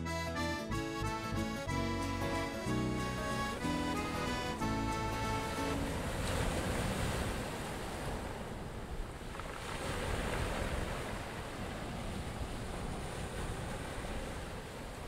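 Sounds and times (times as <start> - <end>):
wind gusting over microphone: 5.4 - 15.0
small waves on stony beach: 5.5 - 15.0.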